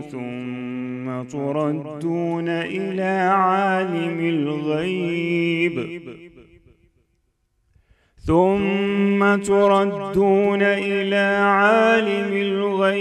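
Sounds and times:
man reciting melodically: 0.0s - 6.7s, 8.1s - 13.0s.

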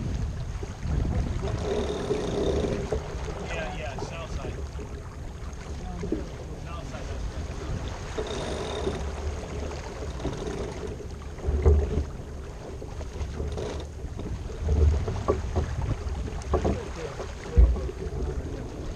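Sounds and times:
water rushing along hull: 0.0s - 18.9s
wind buffeting microphone: 0.0s - 18.9s
short knocks: 1.2s - 4.5s, 8.1s - 12.1s, 13.2s - 18.4s.

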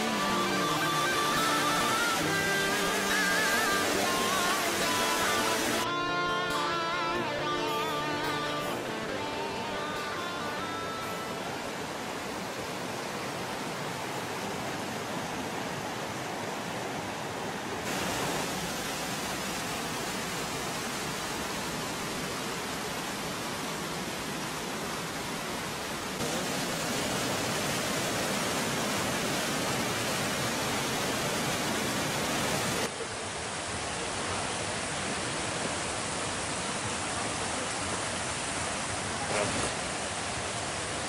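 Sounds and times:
waterfall pouring over rock: 0.0s - 6.0s, 17.8s - 41.0s.

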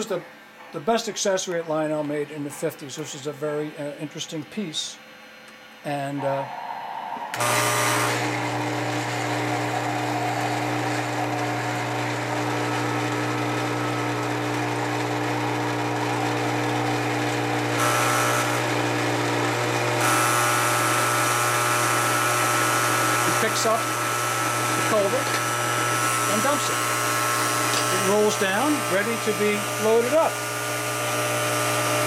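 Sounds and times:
toy motor electric buzz: 7.4s - 32.0s.

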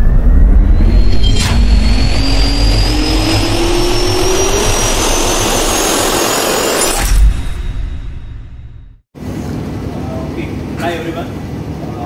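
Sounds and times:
jet turbine roar: 0.0s - 8.8s
rising turbine whine: 0.0s - 9.0s.

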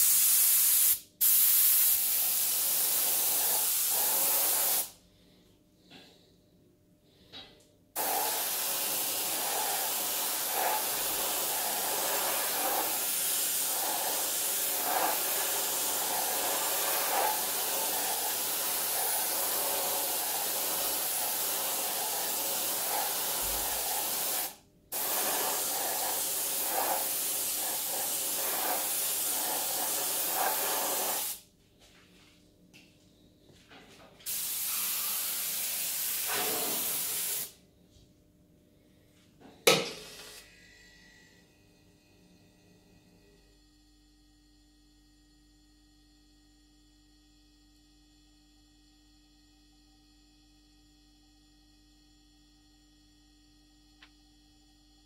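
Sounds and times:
paint spray gun hissing: 0.0s - 4.9s, 8.0s - 31.4s, 34.3s - 37.6s.

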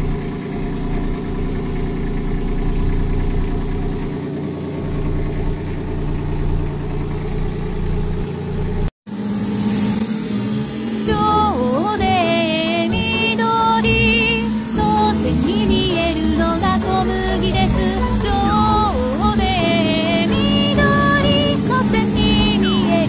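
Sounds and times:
sprayer engine running: 0.0s - 23.0s
music: 11.0s - 23.0s.

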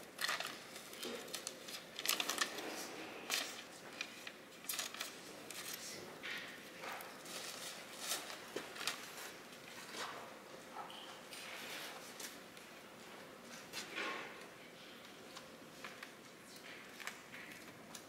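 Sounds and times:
paper rustling: 0.2s - 10.2s.

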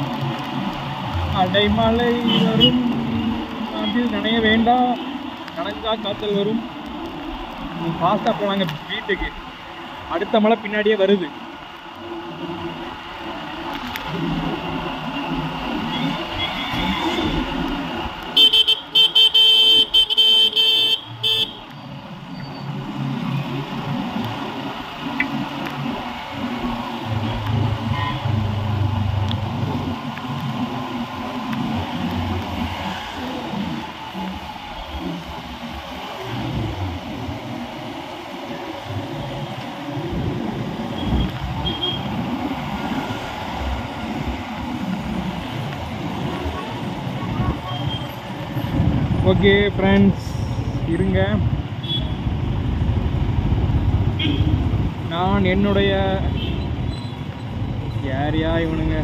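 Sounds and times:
motorbike rumble and wind: 0.0s - 10.2s, 11.4s - 59.0s
vehicle horn honking: 18.4s - 21.6s, 54.2s - 54.6s
wind buffeting microphone: 43.6s - 49.5s.

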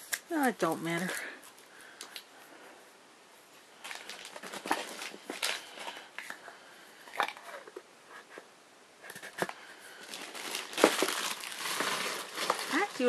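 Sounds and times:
packaging crinkling: 3.8s - 7.8s, 9.1s - 13.0s.

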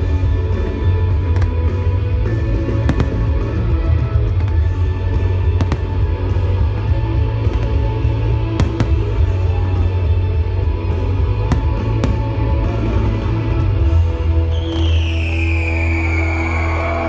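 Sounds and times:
firework shells bursting: 2.8s - 3.6s, 5.6s - 6.1s, 8.6s - 9.3s, 11.5s - 12.5s.

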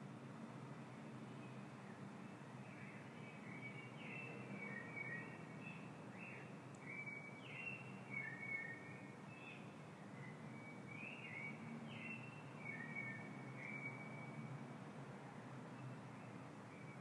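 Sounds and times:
faint steady hiss: 0.0s - 17.0s
small birds chirping: 1.2s - 14.4s.

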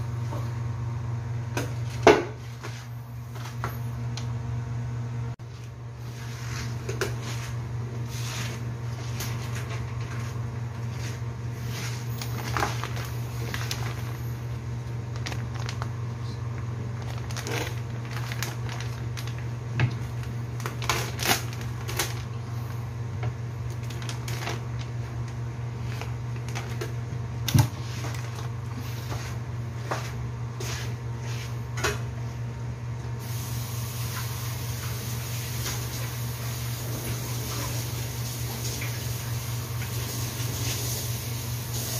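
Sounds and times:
steady low hum: 0.0s - 39.9s
plastic packet handling: 11.6s - 22.8s, 23.6s - 29.3s.

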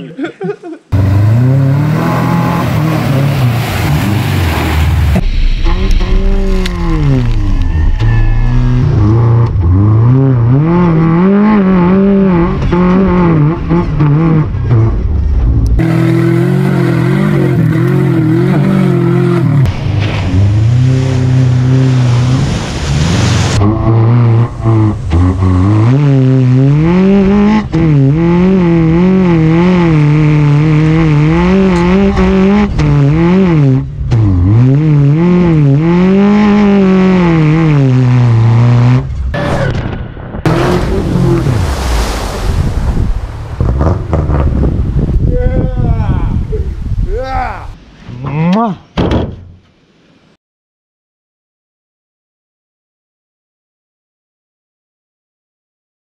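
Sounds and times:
car engine revving: 0.9s - 45.2s.

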